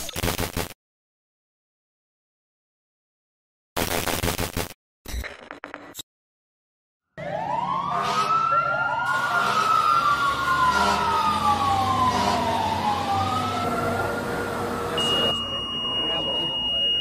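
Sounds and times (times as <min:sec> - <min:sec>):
sirens wailing: 0:07.2 - 0:17.0.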